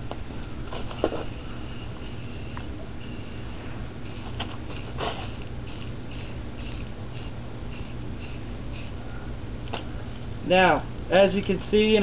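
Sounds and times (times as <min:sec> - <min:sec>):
spray paint can hissing: 0:01.2 - 0:09.0.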